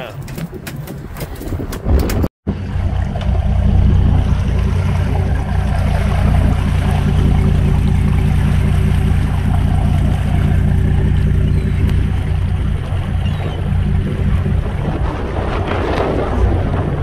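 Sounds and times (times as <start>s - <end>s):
boat engine humming: 2.5s - 17.0s.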